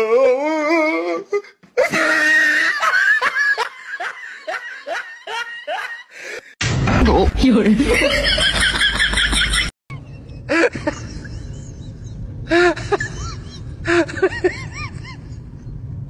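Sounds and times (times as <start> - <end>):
person whimpering cries: 0.0 - 2.6
laughter: 1.8 - 6.2, 7.8 - 15.5
steady low hum: 6.7 - 16.0.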